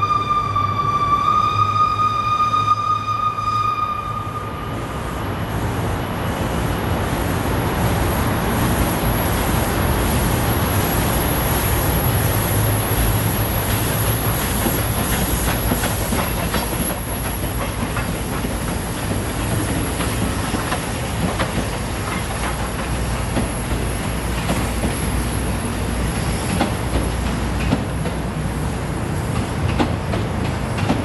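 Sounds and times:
steam locomotive whistle: 0.0s - 5.1s
steam locomotive rumbling: 0.0s - 31.0s
wheels clicking over rail joints: 13.0s - 25.4s, 26.0s - 31.0s.

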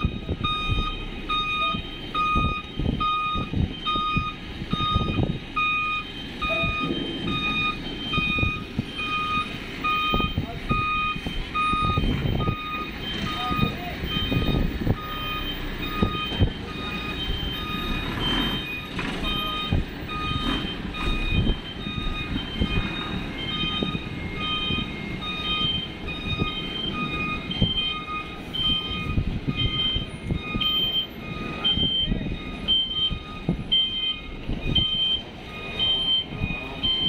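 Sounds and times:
diesel engine running: 0.0s - 37.0s
reverse warning alarm beeping: 0.0s - 37.0s.

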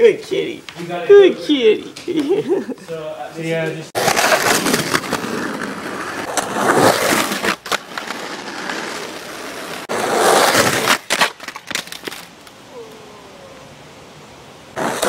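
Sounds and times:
skateboard wheels rolling on asphalt: 0.0s - 12.7s, 14.2s - 15.0s
skateboard clacks: 4.0s - 12.6s.

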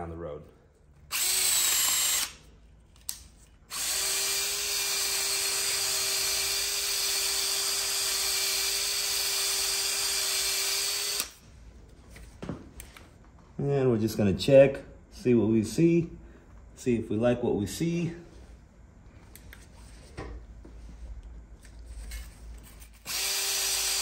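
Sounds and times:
drill spinning a hone: 1.1s - 2.4s, 3.7s - 11.4s, 22.1s - 24.0s.

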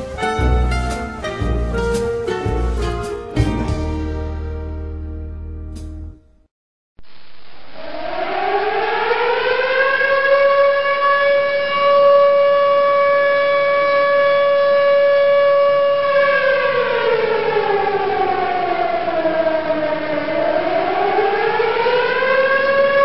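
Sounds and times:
warning siren wailing: 7.7s - 23.0s.

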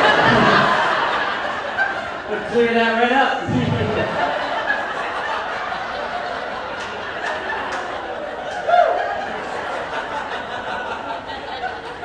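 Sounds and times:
audience laughing: 0.0s - 12.0s.

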